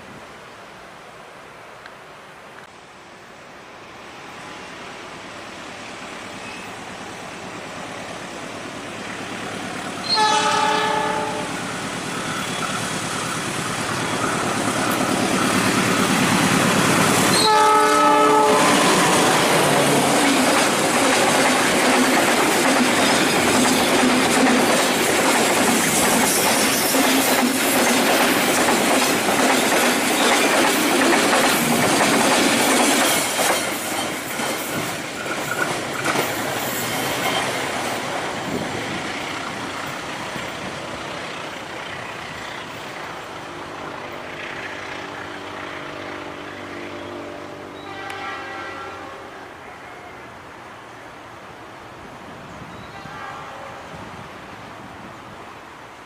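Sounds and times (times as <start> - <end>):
train horn blasts: 10.0 - 11.7, 17.3 - 20.1, 45.4 - 50.3, 52.8 - 54.0
train wheels clattering on rails: 11.5 - 17.8, 18.5 - 45.6.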